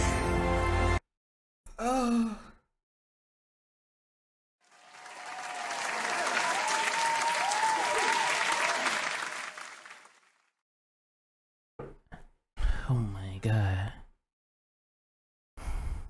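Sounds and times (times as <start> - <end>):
crowd applause: 4.6 - 10.4.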